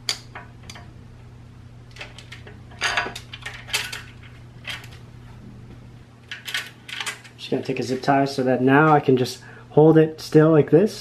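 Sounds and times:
metal chain clinking and rattling: 2.1s - 5.0s.

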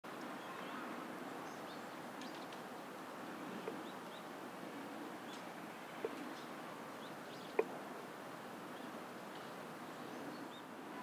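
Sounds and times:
outdoor background noise: 0.0s - 11.0s.

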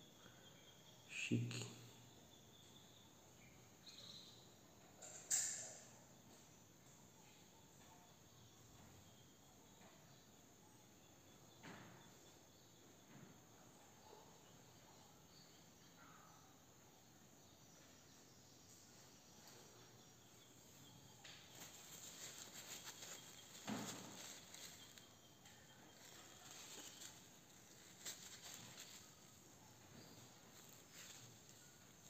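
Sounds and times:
faint handling ticks: 19.4s - 32.0s
paper towel rustling: 21.6s - 25.0s.

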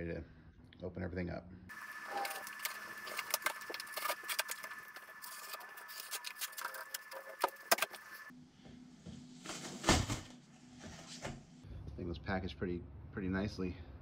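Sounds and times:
cardboard rustling and crackling: 2.1s - 8.3s.

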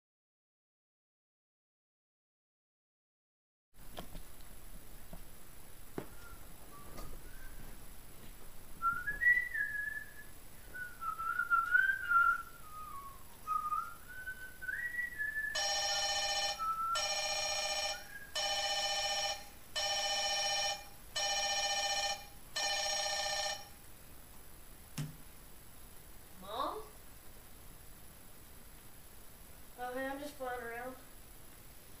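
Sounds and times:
person whistling a tune: 8.8s - 15.6s, 16.6s - 17.1s
mobile phone ringtone: 15.6s - 23.8s.

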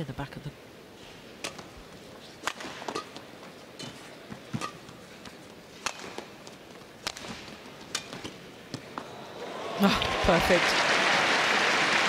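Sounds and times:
racket striking shuttlecock: 1.4s - 1.8s, 2.4s - 3.4s, 4.4s - 5.0s, 5.7s - 9.0s
arena crowd hum: 8.4s - 12.0s.

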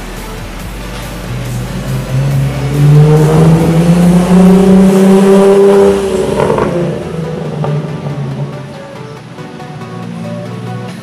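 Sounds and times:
car engine accelerating past: 1.1s - 8.7s.

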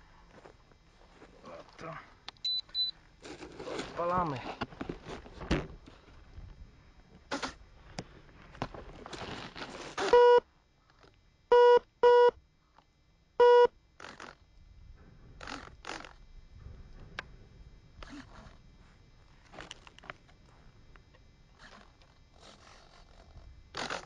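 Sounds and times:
short low electronic beeps: 2.4s - 3.0s.

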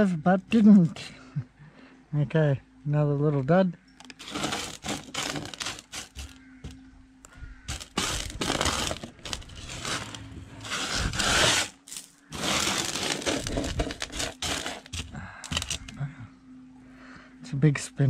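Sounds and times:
gravel scraping on metal table: 4.1s - 6.8s, 7.7s - 15.9s.

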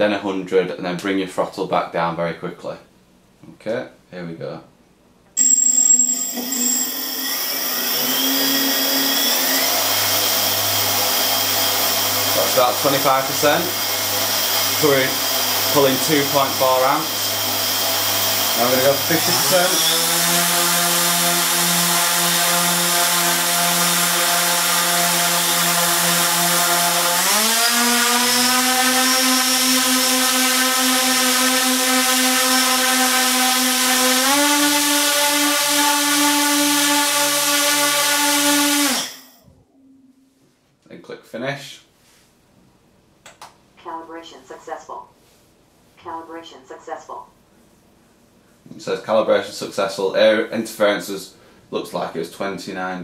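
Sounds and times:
brief high-pitched tone: 5.4s - 9.7s, 39.7s - 40.4s
drone motors whining: 5.4s - 13.4s.

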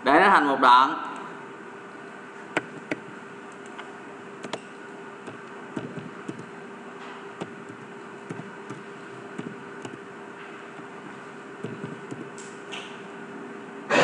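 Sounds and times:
steady background hum: 0.0s - 14.0s
keyboard keystrokes: 2.6s - 3.8s, 4.4s - 6.5s, 7.4s - 10.0s, 11.6s - 12.5s
computer mouse clicks: 2.6s - 6.5s, 7.4s - 8.8s, 9.4s - 10.0s, 11.6s - 12.5s.

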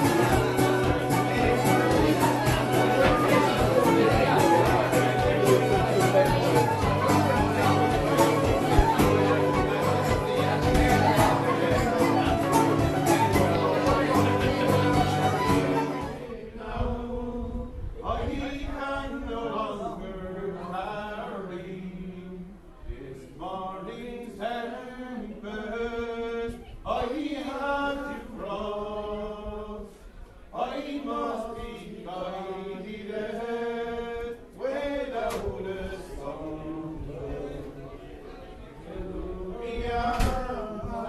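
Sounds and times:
man singing unaccompanied: 0.0s - 17.4s, 38.9s - 41.0s
group singing unaccompanied: 0.0s - 30.0s, 30.6s - 38.0s, 38.8s - 41.0s.

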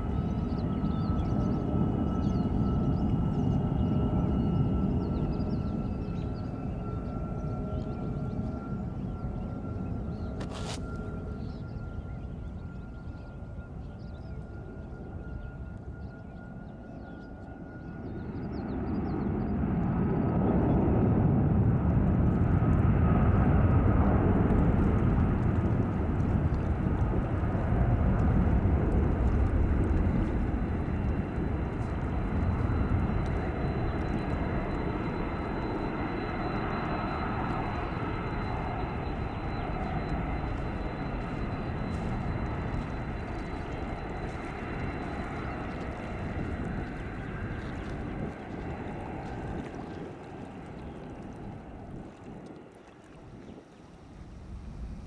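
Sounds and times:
jet engine rumble: 0.0s - 55.0s
high whine: 23.4s - 50.3s.

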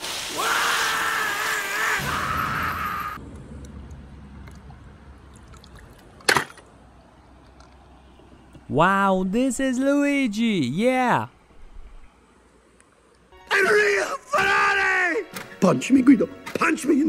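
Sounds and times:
water spraying hard: 0.0s - 2.4s.

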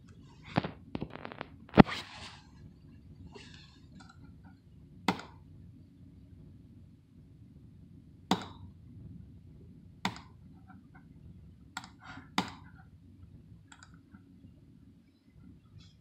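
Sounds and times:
low hum: 0.0s - 16.0s
mouse button clicks: 8.3s - 8.6s.

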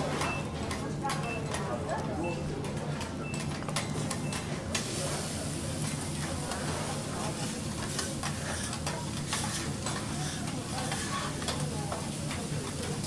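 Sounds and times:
food sizzling on griddle: 4.8s - 13.0s
metal spatula scraping and tapping: 5.8s - 13.0s.

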